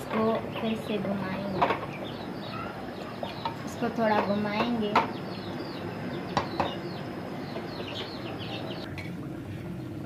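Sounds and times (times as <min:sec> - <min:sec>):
small birds chirping: 0:00.0 - 0:08.9
low steady background noise: 0:00.0 - 0:10.0.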